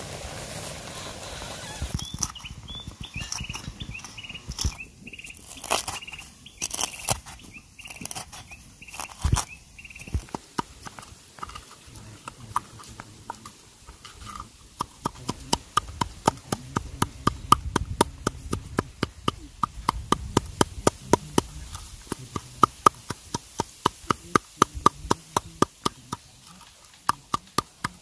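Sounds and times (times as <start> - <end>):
stick pounding in metal cup: 14.8 - 26.3.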